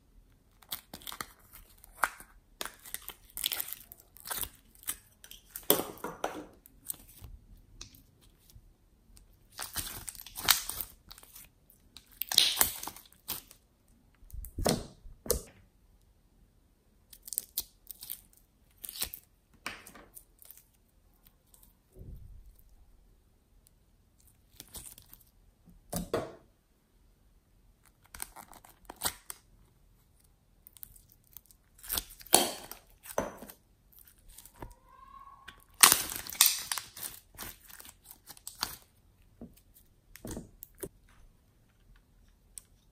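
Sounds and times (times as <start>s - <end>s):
slime crackling and tearing: 0.5s - 5.7s, 9.2s - 13.6s, 17.1s - 19.3s, 24.2s - 25.3s, 27.8s - 39.0s.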